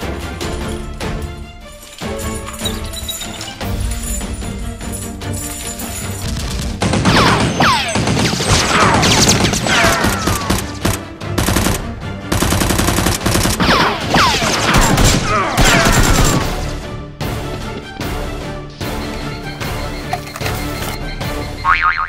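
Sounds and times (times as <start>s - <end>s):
background music: 0.0s - 22.0s
automatic gunfire: 6.8s - 16.4s.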